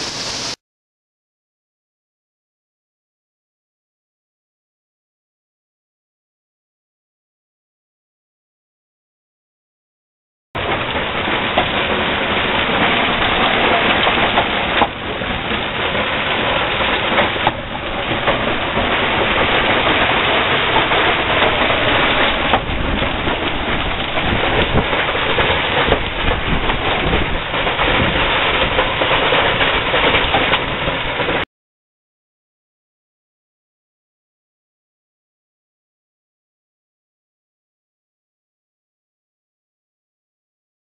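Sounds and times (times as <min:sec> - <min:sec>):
hail and rain pelting: 0:00.0 - 0:00.6, 0:10.6 - 0:31.4.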